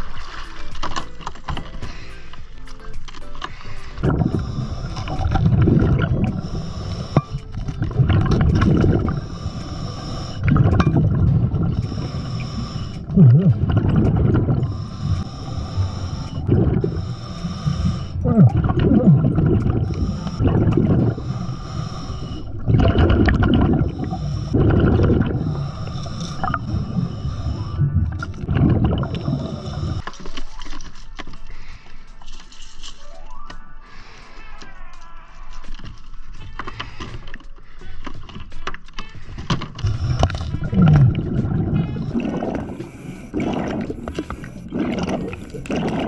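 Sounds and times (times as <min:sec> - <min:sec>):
regulator inhale hiss: 0:03.4 - 0:05.6, 0:06.2 - 0:07.6, 0:08.8 - 0:10.6, 0:11.8 - 0:13.2, 0:14.6 - 0:18.2, 0:19.8 - 0:22.6, 0:23.8 - 0:24.6, 0:25.2 - 0:28.0, 0:29.1 - 0:30.1
exhaled bubbles rumbling: 0:04.0 - 0:09.6, 0:10.2 - 0:21.6, 0:22.2 - 0:30.0, 0:39.8 - 0:46.0.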